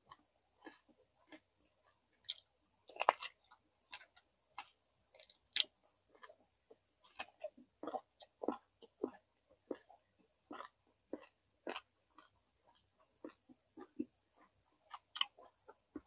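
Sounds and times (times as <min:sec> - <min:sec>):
chewing with wet mouth clicks: 0:00.1 - 0:06.4, 0:07.0 - 0:16.0.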